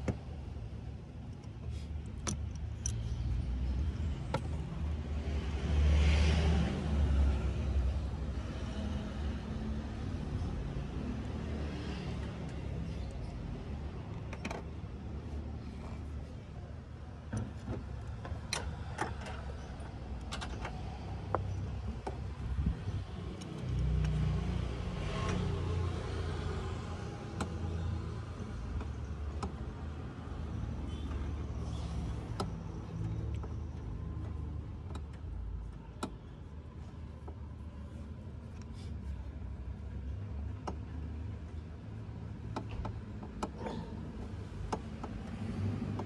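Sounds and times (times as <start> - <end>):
car engine rumbling: 12.2 - 46.0.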